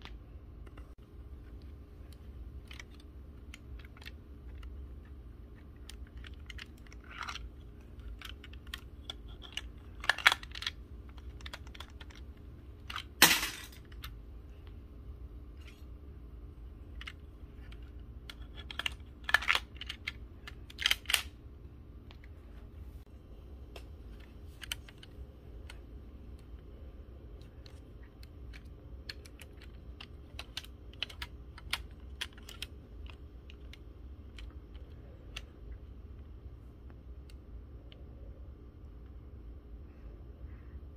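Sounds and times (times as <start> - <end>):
plastic bricks clicking and clacking: 2.0 - 14.2, 16.9 - 21.3, 27.4 - 35.6.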